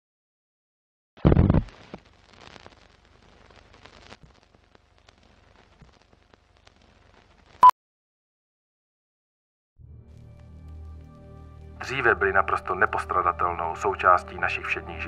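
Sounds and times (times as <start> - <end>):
faint crackle and ticks: 1.4 - 7.7, 10.1 - 13.8.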